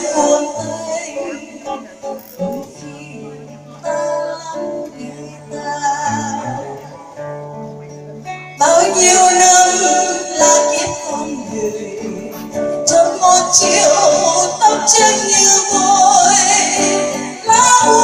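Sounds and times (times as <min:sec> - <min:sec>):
woman singing: 0:00.0 - 0:07.1, 0:08.5 - 0:18.0
acoustic guitar plucked softly: 0:00.0 - 0:18.0.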